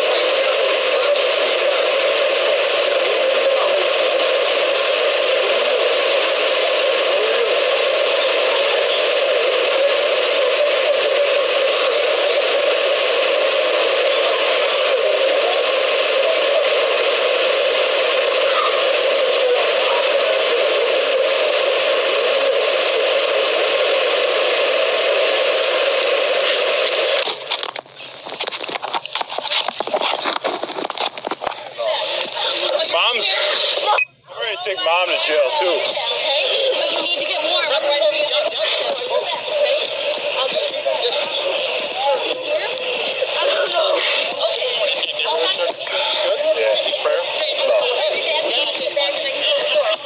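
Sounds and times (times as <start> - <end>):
clothing rubbing on microphone: 27.9 - 31.6.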